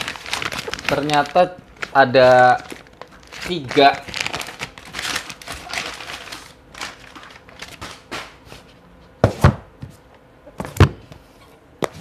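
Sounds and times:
plastic bag rustling: 0:00.0 - 0:08.7.

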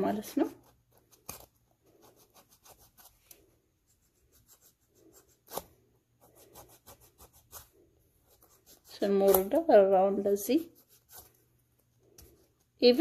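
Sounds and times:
nail file scraping toenail: 0:00.6 - 0:03.4.

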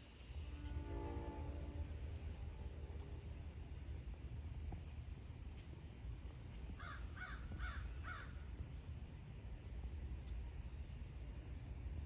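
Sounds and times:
crow cawing: 0:06.8 - 0:08.3.

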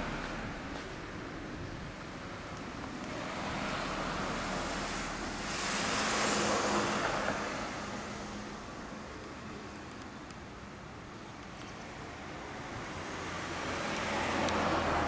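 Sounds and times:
broad rushing noise: 0:00.0 - 0:11.0.

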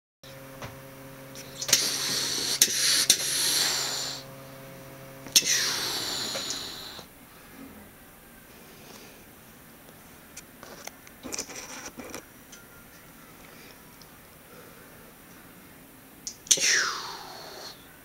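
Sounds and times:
cat hissing: 0:01.5 - 0:04.2, 0:05.4 - 0:07.1, 0:16.5 - 0:17.8.

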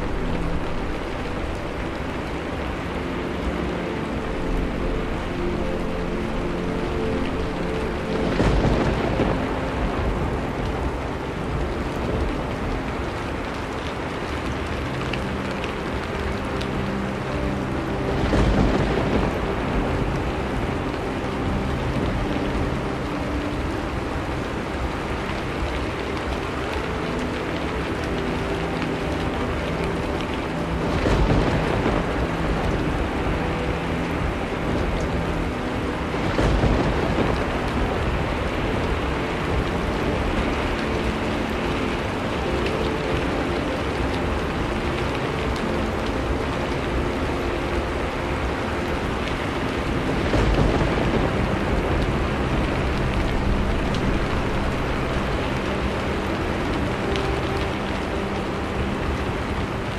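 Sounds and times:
steady rain falling: 0:00.0 - 0:59.9
low thunder rumbles: 0:07.3 - 0:13.5, 0:17.9 - 0:23.0, 0:29.2 - 0:42.6, 0:47.8 - 0:58.1.

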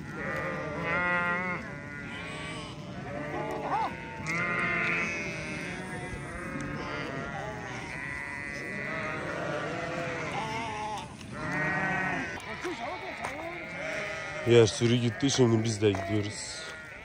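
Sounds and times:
sheep bleating: 0:00.0 - 0:17.0.

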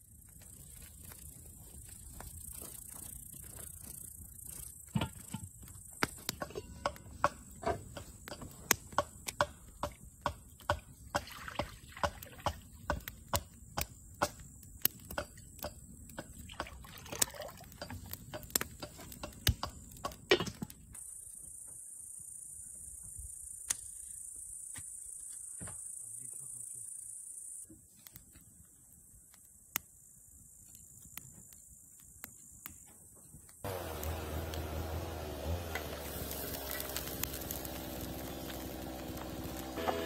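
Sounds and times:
crickets chirring: 0:00.0 - 0:10.6, 0:20.9 - 0:27.7, 0:28.5 - 0:33.6
wood fire crackling and popping: 0:00.1 - 0:20.8, 0:33.5 - 0:40.0
water pouring into pot: 0:16.6 - 0:17.9.

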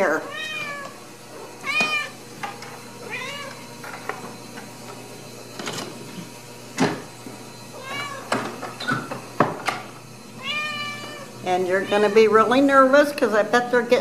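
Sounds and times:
cat meowing: 0:00.2 - 0:01.0, 0:01.6 - 0:02.2, 0:03.0 - 0:03.6, 0:07.8 - 0:08.3, 0:10.4 - 0:12.5.

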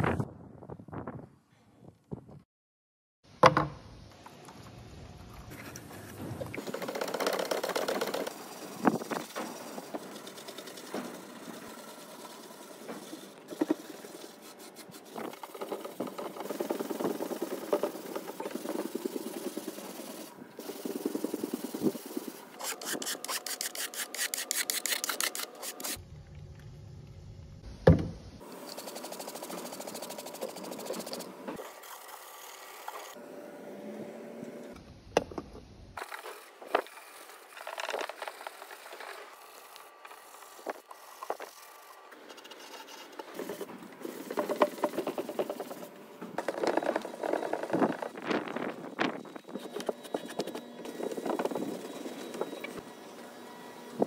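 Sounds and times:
pad scrubbing wooden boards: 0:06.6 - 0:26.0.

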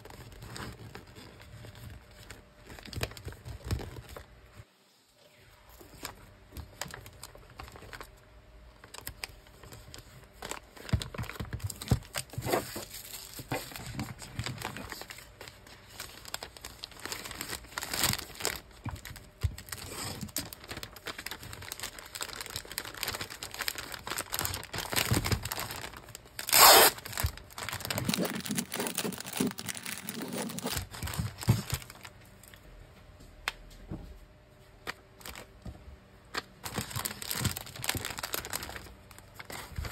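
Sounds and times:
plastic bag and paper crinkling: 0:00.0 - 0:04.7, 0:05.7 - 0:32.6, 0:34.8 - 0:35.6, 0:36.3 - 0:39.9
loud rip: 0:26.4 - 0:27.3.

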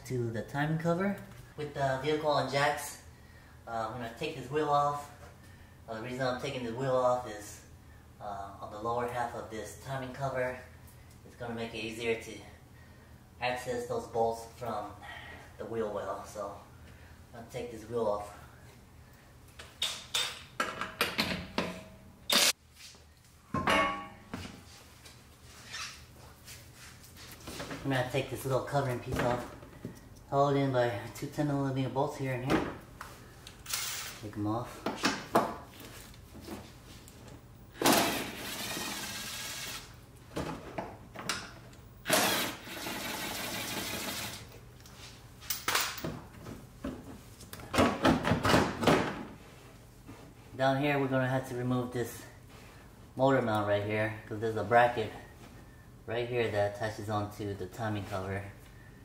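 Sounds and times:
impact wrench whirring: 0:22.3 - 0:22.5, 0:33.6 - 0:34.2, 0:37.8 - 0:40.0, 0:42.0 - 0:44.4
cordless drill spinning out bolts: 0:33.6 - 0:34.2, 0:37.8 - 0:39.9, 0:42.0 - 0:44.4.

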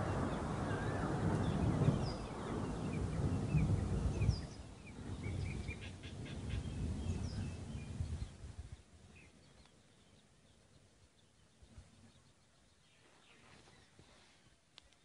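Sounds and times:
low rumbling noise: 0:00.0 - 0:08.9
birds chirping: 0:00.0 - 0:15.0.

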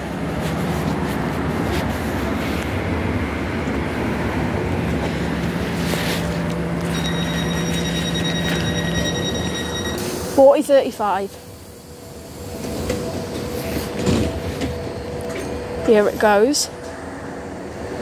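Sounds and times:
high steady whine: 0:00.0 - 0:12.5
train braking to a stop: 0:06.8 - 0:17.7.

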